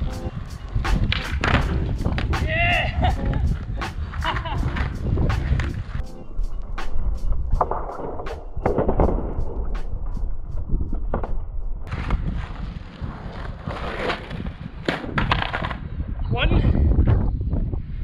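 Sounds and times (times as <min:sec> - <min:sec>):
skateboard wheels rolling on asphalt: 0:00.0 - 0:16.2
skateboard popped and flipped: 0:00.9 - 0:02.5, 0:07.6 - 0:09.8, 0:11.0 - 0:15.8
skateboard clattering on ground: 0:13.2 - 0:15.8.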